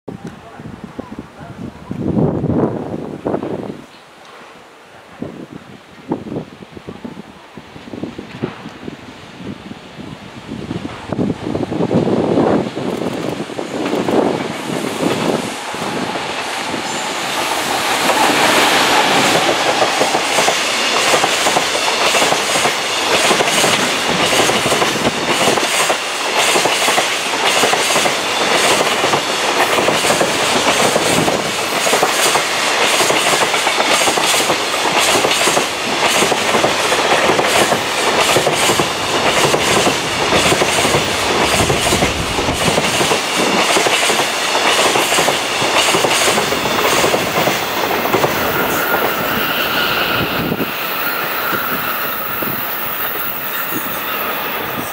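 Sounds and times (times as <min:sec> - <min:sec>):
electric locomotive passing: 0:07.8 - 0:54.9
wheels clacking over rail joints: 0:13.2 - 0:54.9.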